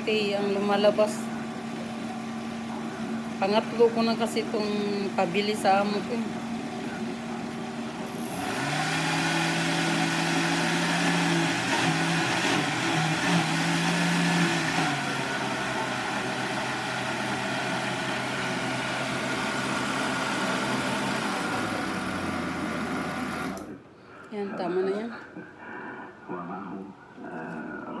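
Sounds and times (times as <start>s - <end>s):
electric blender motor whirring: 0.0s - 23.8s.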